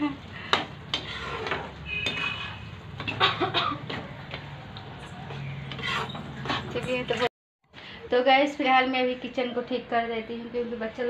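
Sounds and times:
utensil scraping a pan: 0:00.5 - 0:03.2, 0:05.6 - 0:07.3.

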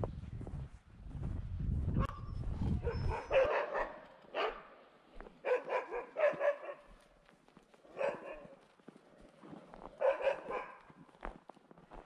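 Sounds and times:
dog barking: 0:02.0 - 0:04.8, 0:05.4 - 0:07.0, 0:07.9 - 0:08.6, 0:10.0 - 0:11.0.

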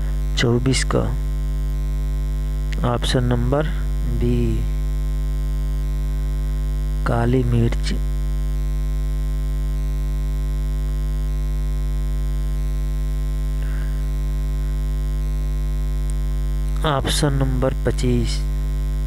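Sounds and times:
electrical mains hum: 0:00.0 - 0:19.0
person speaking: 0:00.3 - 0:01.2, 0:02.8 - 0:04.8, 0:07.0 - 0:08.0, 0:16.7 - 0:18.5.

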